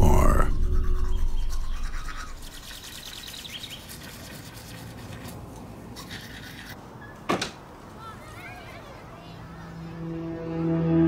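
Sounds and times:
birds chirping: 0.0 - 4.1
toothbrush scrubbing teeth: 0.5 - 6.8.

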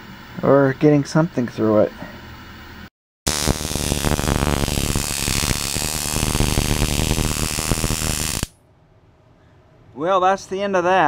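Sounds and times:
electrical arc crackling: 3.3 - 8.6
electrical buzz: 3.3 - 8.6.

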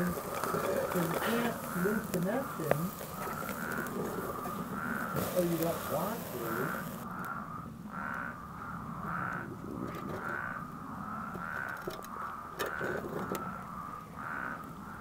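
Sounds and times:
faint clicks: 0.0 - 5.7
toads calling: 0.0 - 15.0.

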